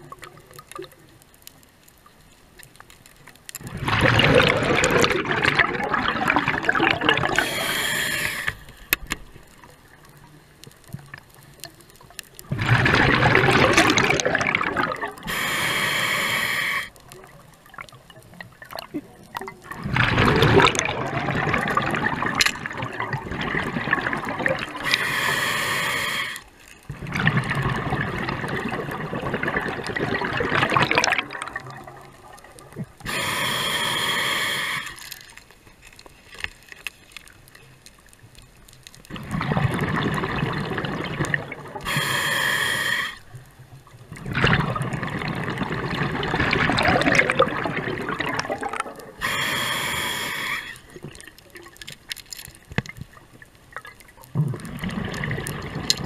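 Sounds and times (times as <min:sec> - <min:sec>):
bubbling exhalations underwater: 0:03.6 - 0:08.4, 0:12.4 - 0:15.6, 0:18.5 - 0:25.2, 0:26.9 - 0:34.8, 0:39.1 - 0:42.8, 0:44.1 - 0:51.7, 0:54.2 - 0:56.0
hissing regulator inhalations: 0:07.3 - 0:08.8, 0:15.2 - 0:17.0, 0:24.8 - 0:26.5, 0:33.0 - 0:35.2, 0:41.8 - 0:43.3, 0:49.2 - 0:50.9.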